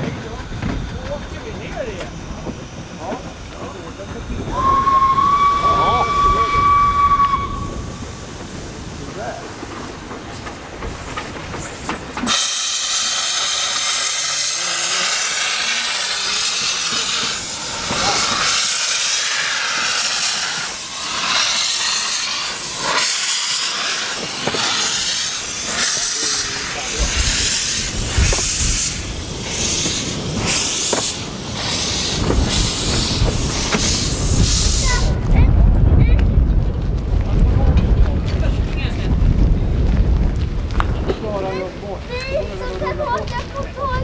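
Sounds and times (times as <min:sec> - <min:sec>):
low rumble with knocks: 0:00.0 - 0:04.6, 0:35.2 - 0:41.4
steam hissing: 0:00.0 - 0:35.4
wheels clattering on rails: 0:00.0 - 0:44.0.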